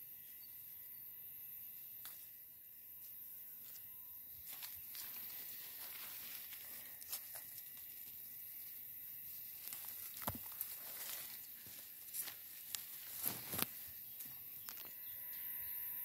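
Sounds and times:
tree leaves rustling: 3.6s - 14.7s.

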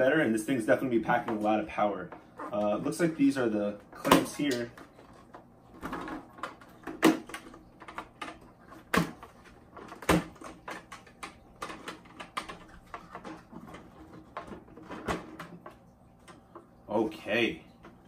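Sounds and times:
plastic clicks and knocks: 4.0s - 16.7s.

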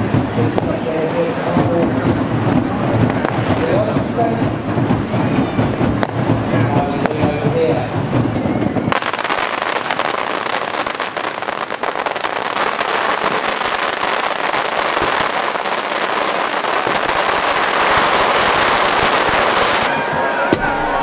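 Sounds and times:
fireworks crackling: 0.0s - 19.9s.

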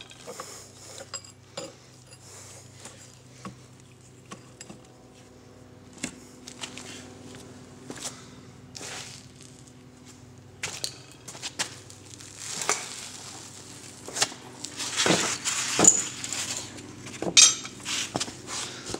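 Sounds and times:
steady low hum: 0.0s - 18.9s
hand tools tapping on metal: 15.8s - 17.8s.

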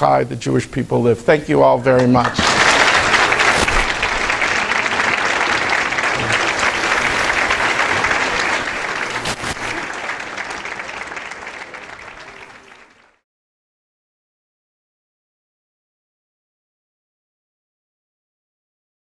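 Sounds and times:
audience applauding: 2.1s - 13.2s.

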